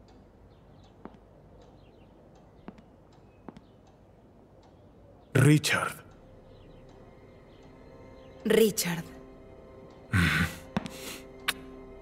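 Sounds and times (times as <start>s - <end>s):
soft clicks: 0.0s - 5.3s
distant bird chirps: 0.0s - 11.9s.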